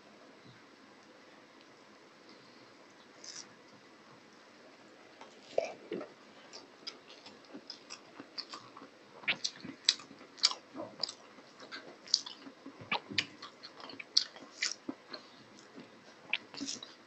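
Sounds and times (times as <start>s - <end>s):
close chewing with wet mouth smacks: 6.6s - 17.0s.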